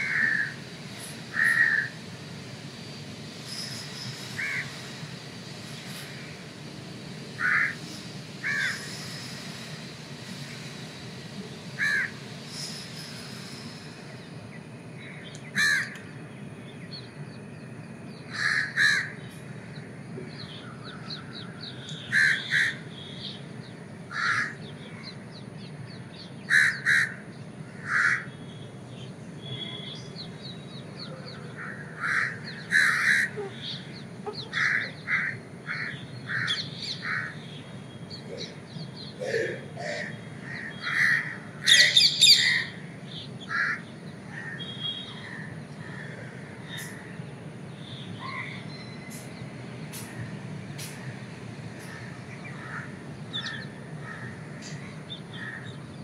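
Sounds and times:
crows cawing: 0.0s - 0.6s, 1.3s - 2.0s, 4.4s - 4.8s, 7.4s - 9.0s, 11.8s - 12.2s, 15.0s - 16.0s, 18.3s - 19.2s, 22.0s - 22.9s, 24.1s - 25.0s, 26.5s - 28.3s, 31.3s - 37.5s, 39.2s - 47.1s, 51.8s - 55.8s
low background hum: 0.0s - 56.0s.

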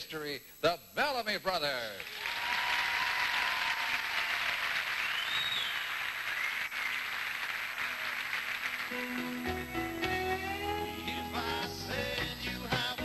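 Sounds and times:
audience applauding: 2.0s - 9.8s.

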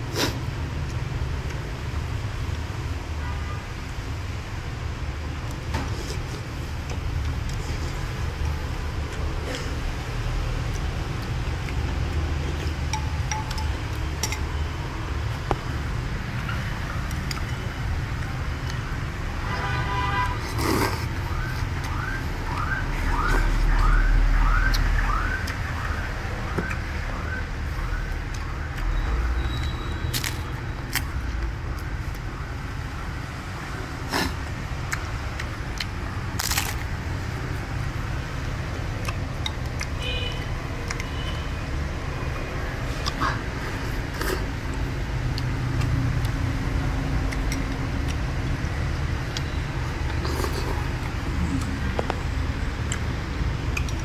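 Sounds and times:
street traffic rumble: 0.0s - 54.0s
spoon and chopsticks clinking bowl: 12.9s - 14.4s.

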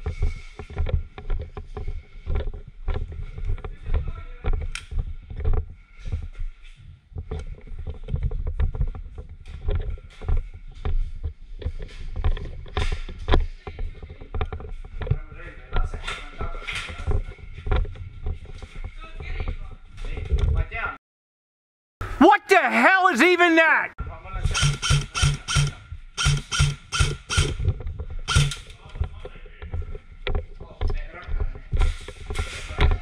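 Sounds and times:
sharp clicks: 24.6s - 27.6s.

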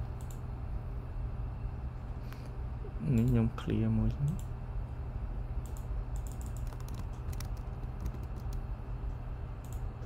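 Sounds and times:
steady low hum: 0.0s - 10.0s
keyboard keys clicking: 5.7s - 8.6s.

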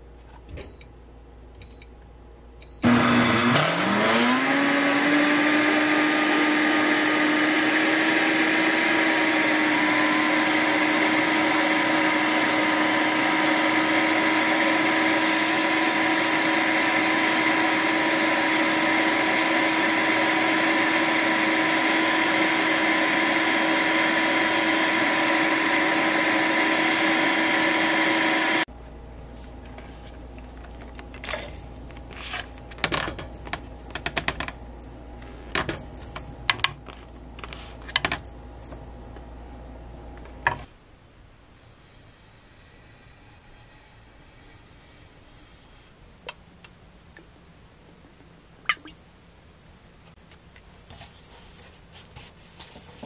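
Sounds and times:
blender motor whining: 2.8s - 28.7s.

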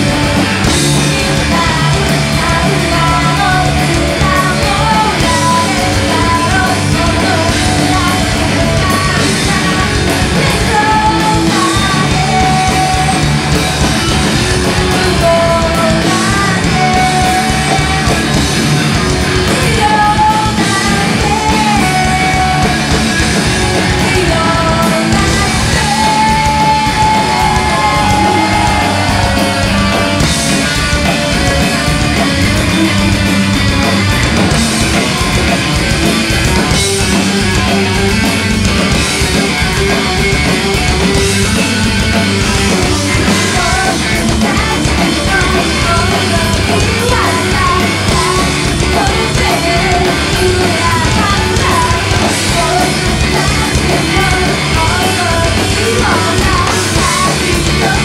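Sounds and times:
woman singing: 0.0s - 38.3s, 38.9s - 58.0s
bass guitar: 0.0s - 58.0s
distorted electric guitar: 0.0s - 58.0s
drum kit: 0.0s - 58.0s.

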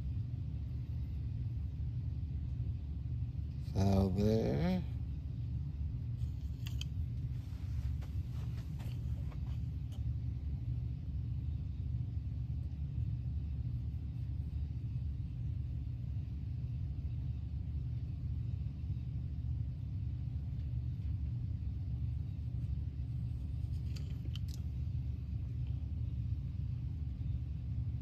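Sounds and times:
low machine rumble: 0.0s - 28.0s.

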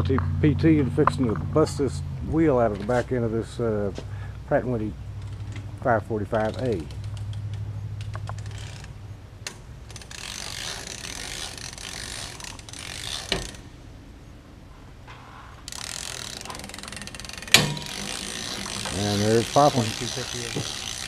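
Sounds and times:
torque multiplier ratcheting: 5.0s - 13.8s, 15.6s - 21.0s.

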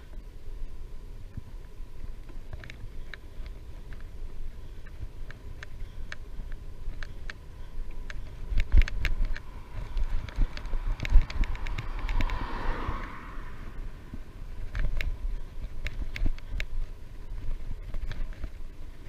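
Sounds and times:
bicycle clicks and rattles: 0.0s - 19.0s
wind buffeting microphone: 1.3s - 19.0s
car passing: 9.2s - 15.7s.

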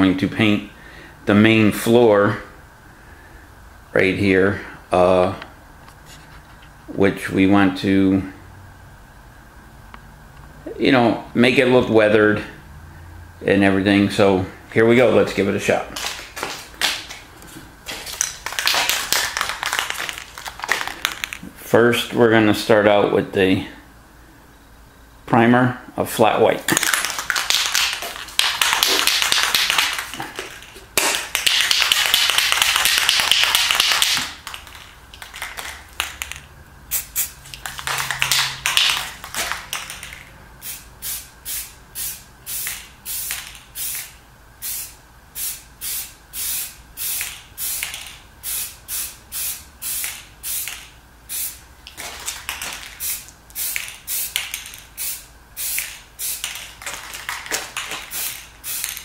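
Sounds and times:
aerosol can spraying hiss: 36.9s - 37.4s, 40.6s - 51.6s, 52.7s - 59.0s.

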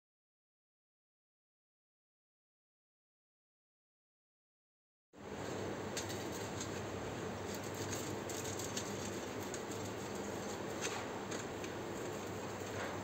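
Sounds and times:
steady background hum: 5.2s - 13.0s.

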